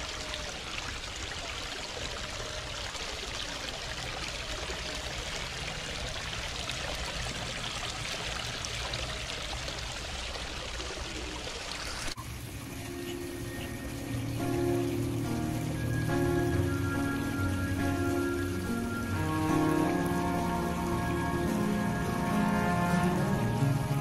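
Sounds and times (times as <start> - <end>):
waterfall splashing into pond: 0.0 - 24.0
music: 12.2 - 24.0.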